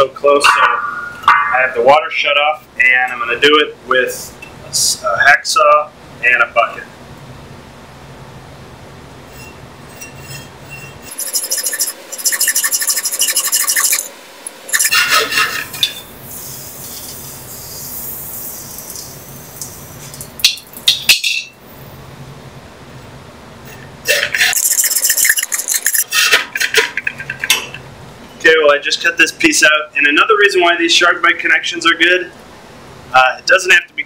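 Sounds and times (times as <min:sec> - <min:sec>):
hacksaw cutting metal pipe: 0:09.4 - 0:14.1, 0:14.7 - 0:15.7.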